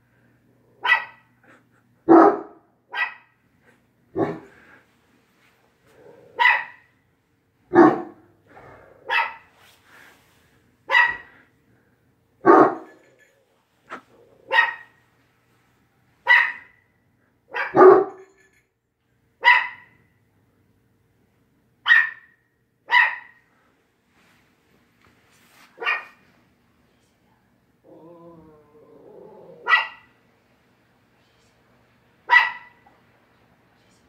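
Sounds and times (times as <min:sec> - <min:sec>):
dog barking: 0:00.8 - 0:01.3, 0:02.1 - 0:03.4, 0:04.2 - 0:04.5, 0:06.4 - 0:06.9, 0:07.7 - 0:08.3, 0:09.0 - 0:09.5, 0:10.9 - 0:11.4, 0:12.4 - 0:13.0, 0:14.5 - 0:15.0, 0:16.3 - 0:16.8, 0:17.5 - 0:18.3, 0:19.4 - 0:20.0, 0:21.9 - 0:23.4, 0:25.8 - 0:26.2, 0:29.6 - 0:30.2, 0:32.3 - 0:32.8.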